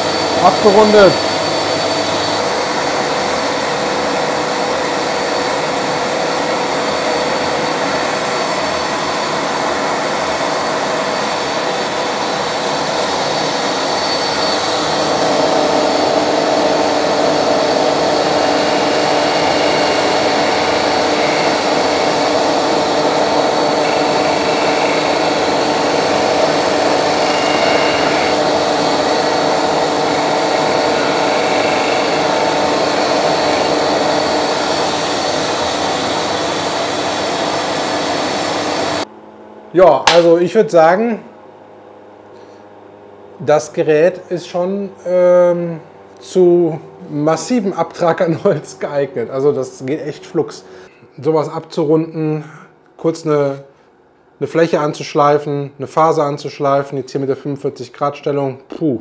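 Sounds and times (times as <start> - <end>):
disc sander whirring: 0.0 - 41.0
shop vacuum humming: 0.0 - 51.1
wood pressed against sanding disc: 15.0 - 36.3.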